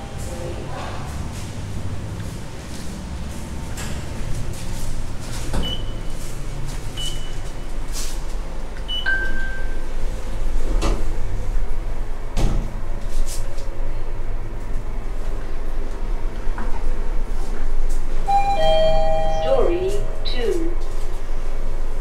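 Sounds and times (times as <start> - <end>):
lift low rumble: 0.0 - 22.0
lift button beeps: 8.9 - 9.8, 18.3 - 20.7
lower longer beep: 18.3 - 20.4.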